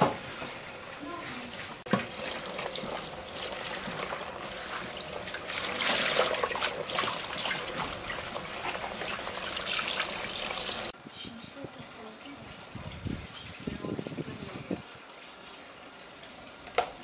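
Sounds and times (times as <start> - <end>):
tap running into a sink: 1.9 - 4.9, 16.0 - 17.0.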